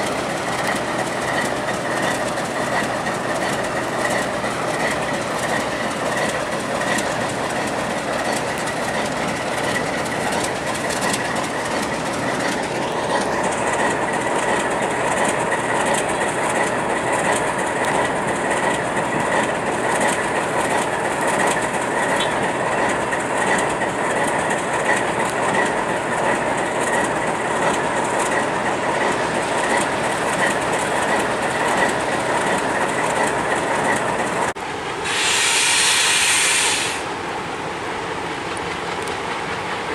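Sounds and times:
diesel locomotive engines idling: 0.0s - 39.9s.

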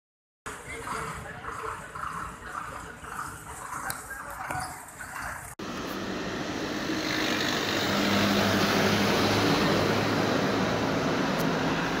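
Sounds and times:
background noise: 0.5s - 5.6s
vehicle engine humming: 5.4s - 12.0s.

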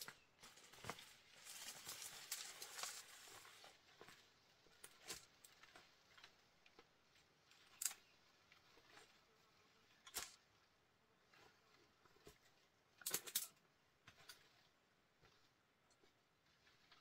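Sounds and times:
rustling leaves and brush: 0.0s - 5.8s
twigs snapping: 0.5s - 3.4s.

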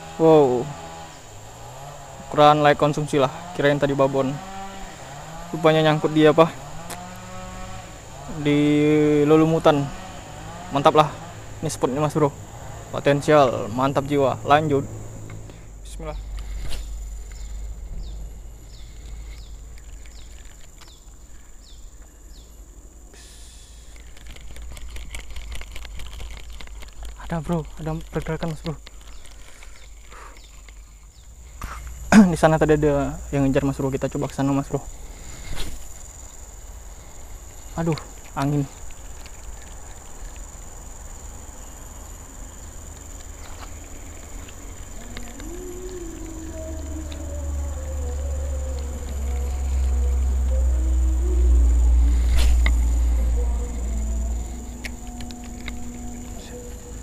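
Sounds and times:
faint wavering hum: 0.0s - 57.0s
high insect drone: 0.0s - 57.0s
low rumble: 13.9s - 21.0s, 44.8s - 57.0s
brief hiss: 23.2s - 24.0s
faint ticks: 37.0s - 57.0s.

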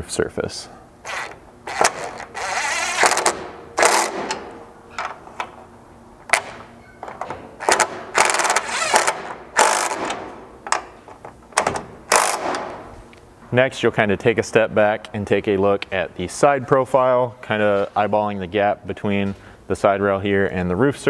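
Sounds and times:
cordless drill bursts: 1.0s - 4.2s.

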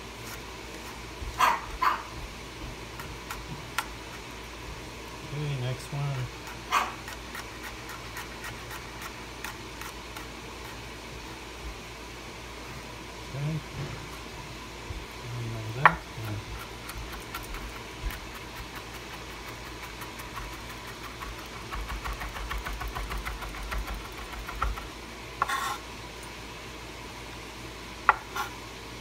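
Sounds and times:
knife scraping cutting board: 6.1s - 10.8s, 15.9s - 24.8s, 25.4s - 25.8s, 28.1s - 28.6s
knife chopping on cutting board: 15.8s - 25.8s.

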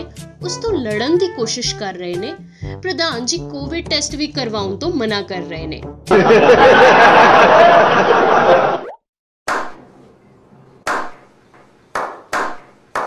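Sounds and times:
men laughing: 6.1s - 8.8s
slow hand claps: 10.9s - 13.0s.

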